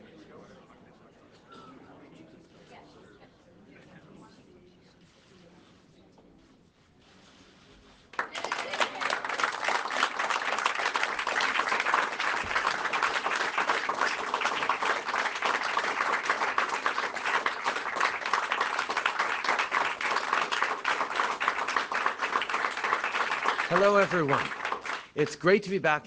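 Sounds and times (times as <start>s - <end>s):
crowd applauding: 8.1s - 25.9s.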